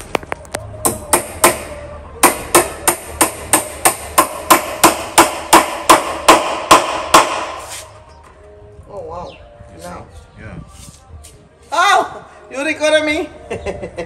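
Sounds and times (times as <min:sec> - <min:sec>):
hammer striking nails into wood: 0:00.8 - 0:07.6.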